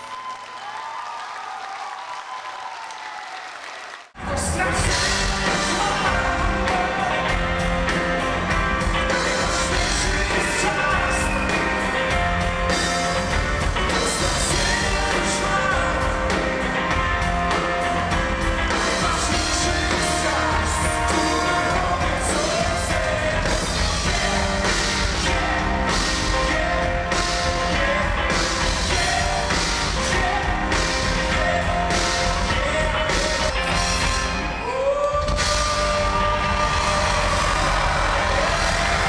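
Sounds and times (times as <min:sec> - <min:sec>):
electric guitar: 0:04.2 - 0:39.0
live rock band: 0:04.2 - 0:39.0
person singing: 0:04.2 - 0:39.0
drum beat: 0:35.3 - 0:39.0.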